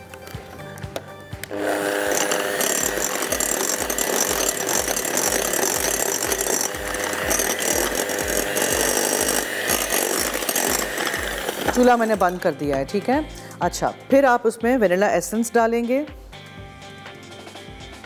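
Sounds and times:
electric hand mixer whirring: 1.5 - 12.8.

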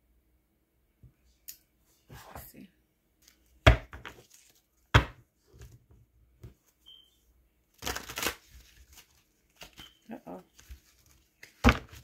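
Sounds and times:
cards rustling shuffle: 4.1 - 4.7, 7.8 - 9.9, 10.5 - 12.0.

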